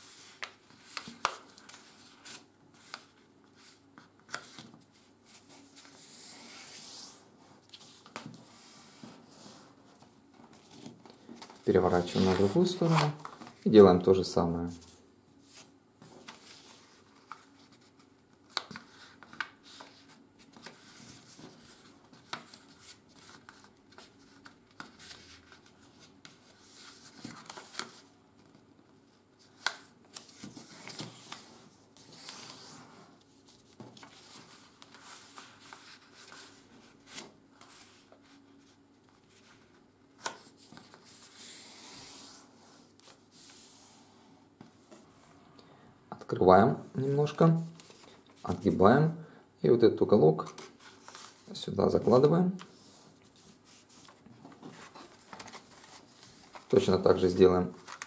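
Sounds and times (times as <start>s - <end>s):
paper rustling and rubbing: 0.0s - 13.7s, 14.7s - 28.2s, 29.4s - 44.1s, 50.4s - 58.0s.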